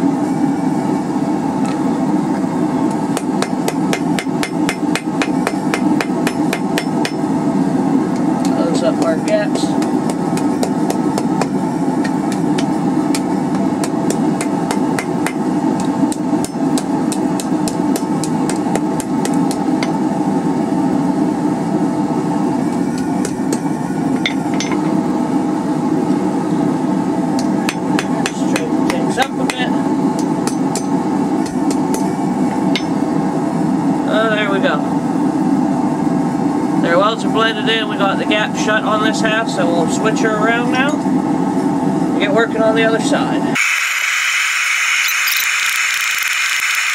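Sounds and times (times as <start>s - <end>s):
hammer striking iron on anvil: 3.2s - 7.3s, 9.3s - 15.4s, 16.1s - 20.0s, 27.4s - 29.6s, 30.2s - 32.1s, 32.7s - 33.0s.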